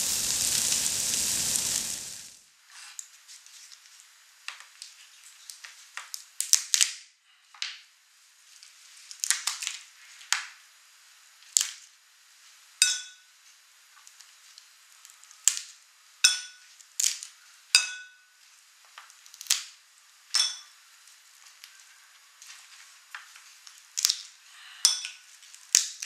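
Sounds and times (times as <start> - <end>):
crab shell cracking: 19.1 - 19.7.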